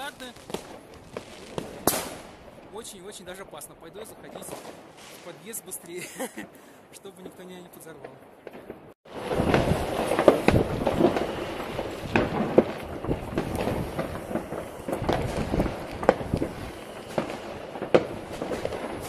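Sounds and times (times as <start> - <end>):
distant fireworks rumble and crackling: 0.0 - 6.4, 7.0 - 19.0
loud firecracker cracks: 0.2 - 2.3, 8.5 - 19.0.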